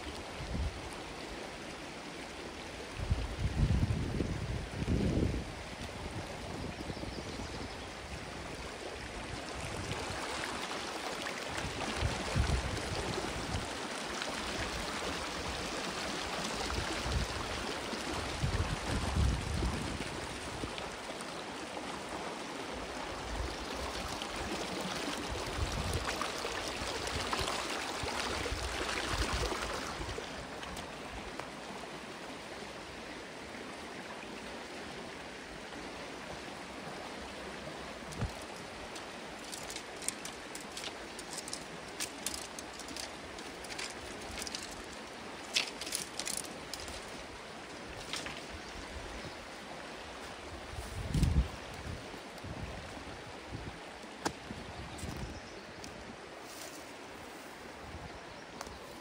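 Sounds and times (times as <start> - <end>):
stream flowing over rocks: 0.0 - 59.0
wind thumps on microphone: 50.9 - 52.7.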